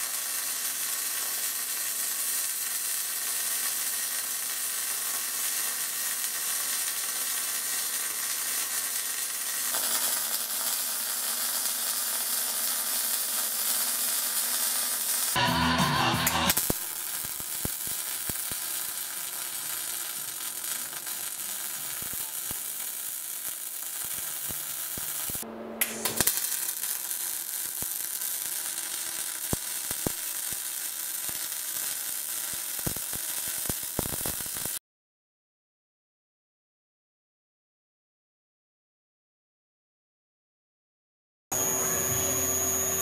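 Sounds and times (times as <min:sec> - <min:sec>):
welding arc crackling: 0:00.0 - 0:34.8
spatter pops: 0:16.2 - 0:34.8.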